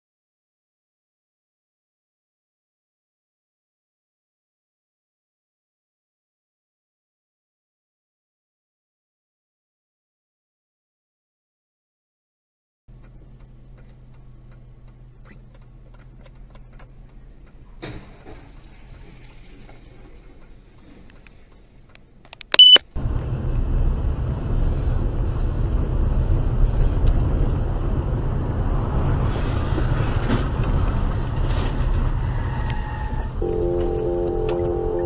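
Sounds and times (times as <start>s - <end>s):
car engine and road noise: 12.9s - 35.0s
high electronic beep: 22.6s - 22.8s.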